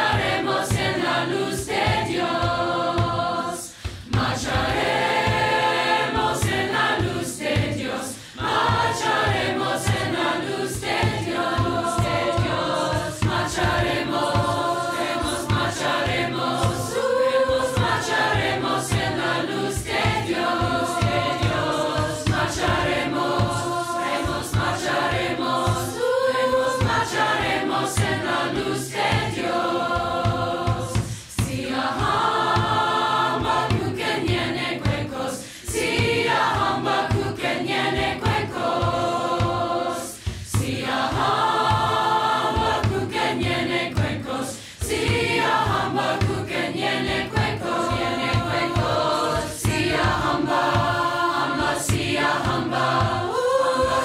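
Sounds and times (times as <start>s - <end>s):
choir singing: 0.0s - 54.0s
instrumental accompaniment with beat: 0.0s - 54.0s.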